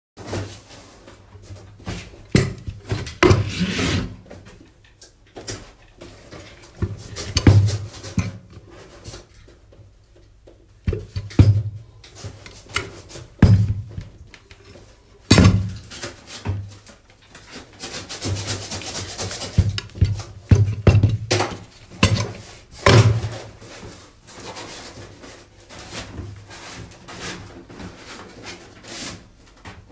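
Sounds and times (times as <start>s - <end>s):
rubbing on table: 3.2s - 4.2s, 17.6s - 20.4s
rubbing and rustling paper: 11.8s - 20.5s, 21.4s - 29.9s
water pump handling knocks: 13.4s - 14.2s, 19.6s - 22.3s.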